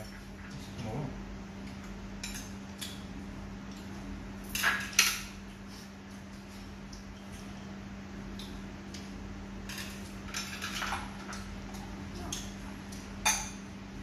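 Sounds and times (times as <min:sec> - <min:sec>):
chopsticks clicking against bowls: 0:08.3 - 0:09.1.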